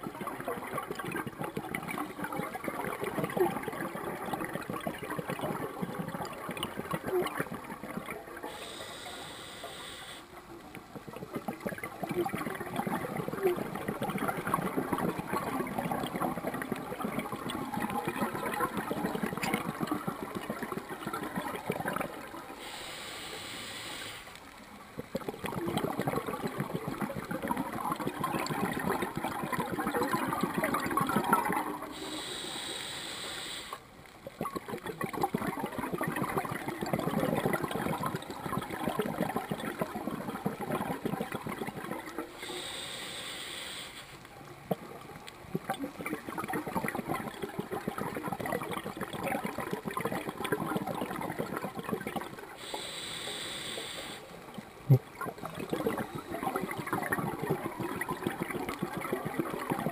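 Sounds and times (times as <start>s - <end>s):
gurgling exhaled bubbles underwater: 0.0s - 22.8s, 24.7s - 32.5s, 34.1s - 42.7s, 44.2s - 53.0s, 53.6s - 59.9s
regulator inhalation hiss: 8.4s - 10.3s, 22.6s - 24.4s, 31.9s - 33.8s, 42.4s - 44.2s, 52.6s - 54.3s.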